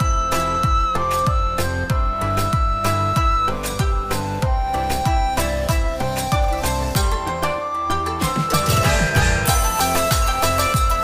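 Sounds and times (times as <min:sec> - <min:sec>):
held melodic tones: 0:00.0 - 0:11.0
deep drum beat: 0:08.2 - 0:11.0.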